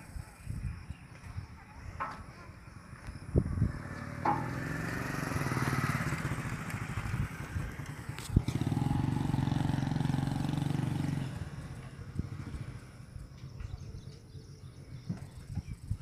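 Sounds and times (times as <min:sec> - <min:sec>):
vehicle engine running: 0:03.4 - 0:15.4
sharp knock: 0:04.2 - 0:04.8.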